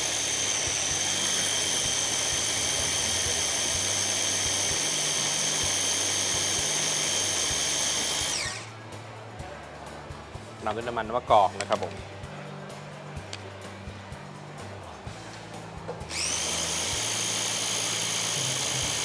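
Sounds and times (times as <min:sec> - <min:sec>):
food processor motor whine: 0:00.0 - 0:08.7, 0:16.1 - 0:19.0.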